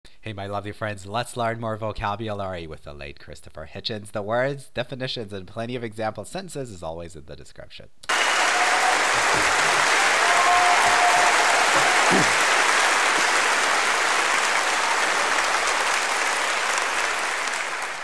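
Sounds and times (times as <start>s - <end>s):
audience applauding: 8.1s - 18.0s.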